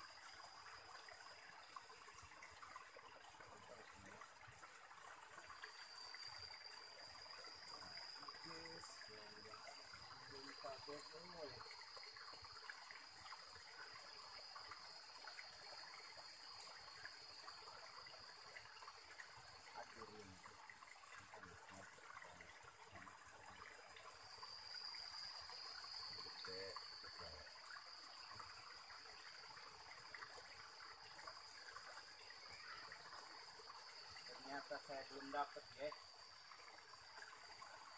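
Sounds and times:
creek water trickling: 0:00.0 - 0:37.9
high-pitched insect buzz: 0:05.6 - 0:12.5.

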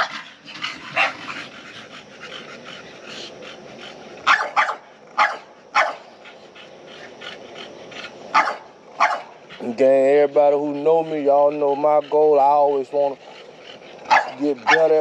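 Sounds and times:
dog barking: 0:00.0 - 0:00.2, 0:00.9 - 0:01.4, 0:04.2 - 0:06.1, 0:08.3 - 0:09.4, 0:14.0 - 0:15.0.

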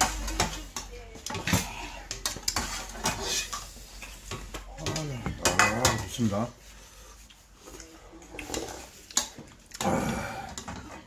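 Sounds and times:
slurping broth: 0:06.9 - 0:10.6.

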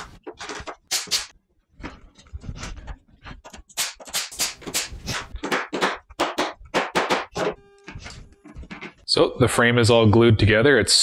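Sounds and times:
nail gun shots: 0:00.9 - 0:01.3, 0:03.8 - 0:07.5
hammer tapping nails: 0:03.4 - 0:07.6.

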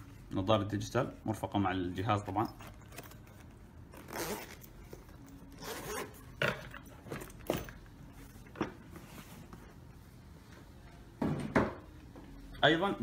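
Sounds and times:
zipper rasping: 0:03.9 - 0:04.8, 0:05.5 - 0:07.2.

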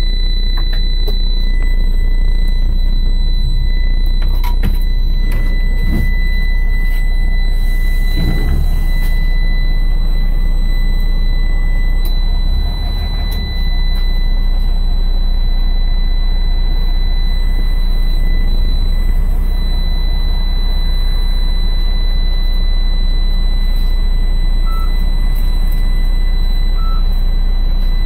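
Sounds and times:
diesel engine idling: 0:00.0 - 0:28.0.

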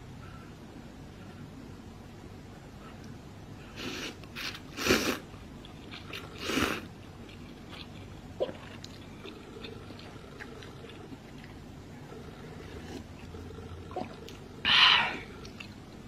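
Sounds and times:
soft eating sounds: 0:02.7 - 0:16.0
person slurping noodles: 0:03.8 - 0:05.2, 0:06.2 - 0:06.9.

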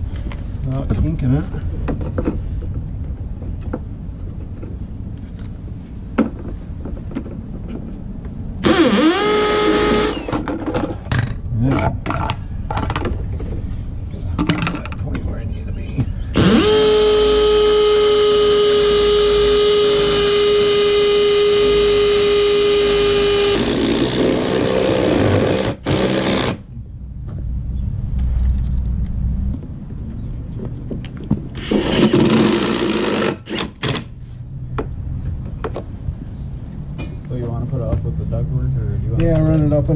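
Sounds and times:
cordless drill whining: 0:08.6 - 0:10.4, 0:16.4 - 0:26.6, 0:31.6 - 0:34.0.

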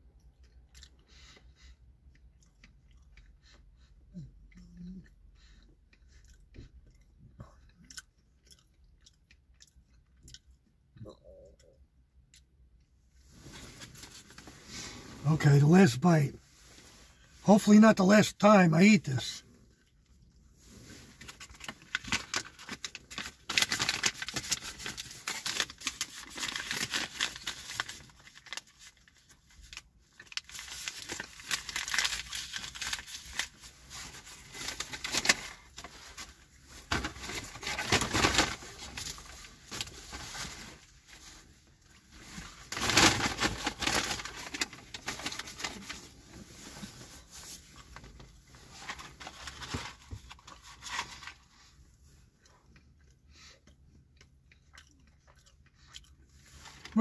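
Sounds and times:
paper bags crinkling: 0:21.2 - 0:41.2, 0:42.3 - 0:51.5.

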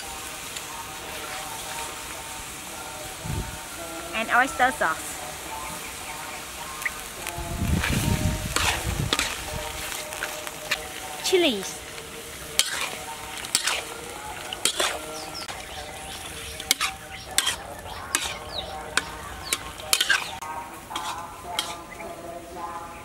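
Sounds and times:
frying sizzle: 0:00.0 - 0:23.0
spatula scraping metal wok: 0:05.3 - 0:22.2.

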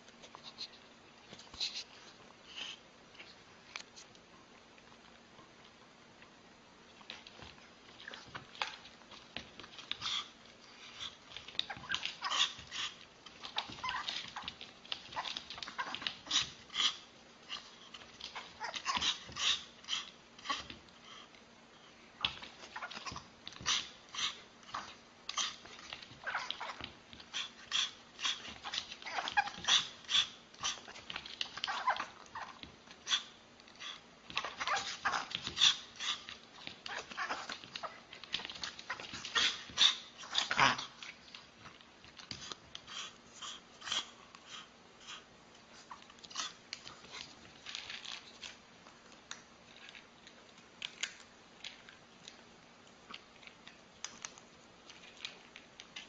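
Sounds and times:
small dog yapping and whining: 0:11.3 - 0:20.8, 0:22.2 - 0:40.9.

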